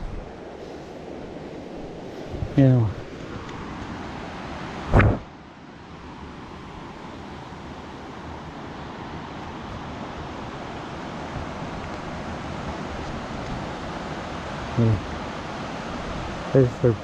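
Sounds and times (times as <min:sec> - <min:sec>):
river rushing over rocks: 0:01.4 - 0:17.0
loud thump: 0:04.9 - 0:05.3.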